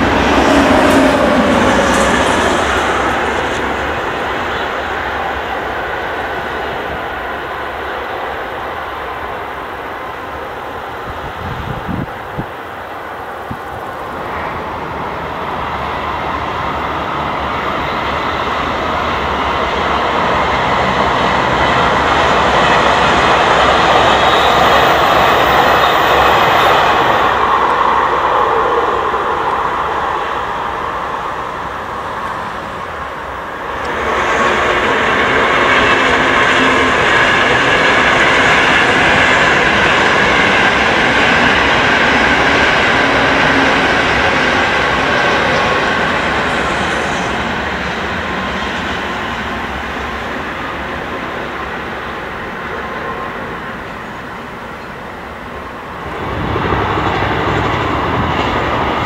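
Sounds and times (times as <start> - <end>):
high-speed trains passing: 0.0 - 59.0.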